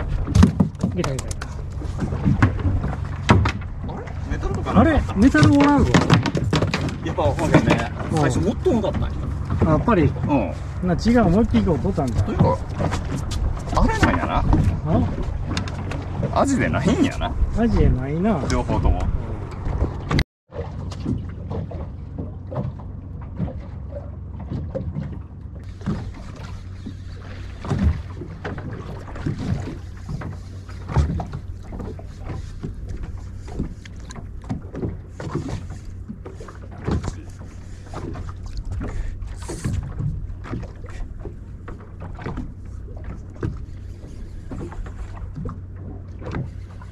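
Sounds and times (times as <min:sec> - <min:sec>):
boat engine idling: 0:00.0 - 0:46.9
water slapping hull: 0:00.0 - 0:46.9
short knocks: 0:05.2 - 0:08.1.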